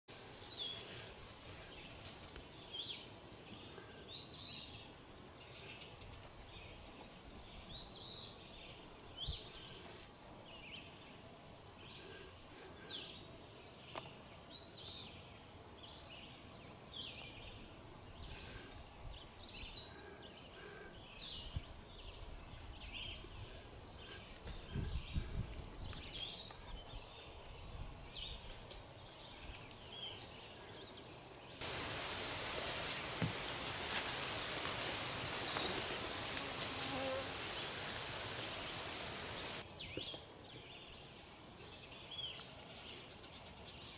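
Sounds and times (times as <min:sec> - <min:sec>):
birds chirping: 0:29.0 - 0:41.0.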